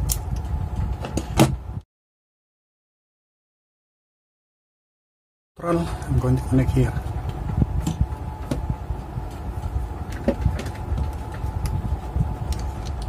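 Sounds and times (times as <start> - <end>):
steady low rumble: 0.0 - 1.8, 5.6 - 13.0.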